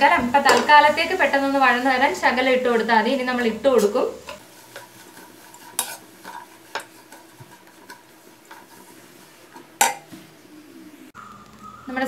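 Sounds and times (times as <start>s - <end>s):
onions sauteing in oil: 0.0s - 10.8s
spatula scraping and tapping pan: 2.3s - 10.3s.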